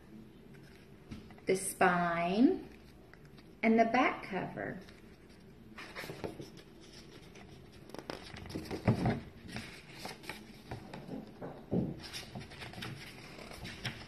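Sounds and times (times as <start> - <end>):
book pages rustling: 0.5 - 1.5, 4.8 - 11.4, 12.0 - 14.0.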